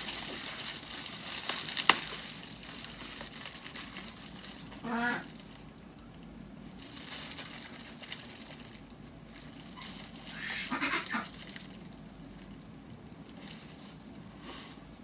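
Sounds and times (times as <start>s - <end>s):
bubble wrap crinkling: 0.0s - 14.4s
duck quacking: 4.8s - 5.3s, 10.3s - 11.3s.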